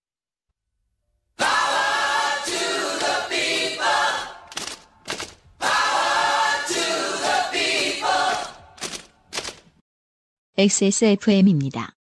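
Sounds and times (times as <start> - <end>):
group singing a cappella: 1.4 - 4.6, 5.6 - 8.8.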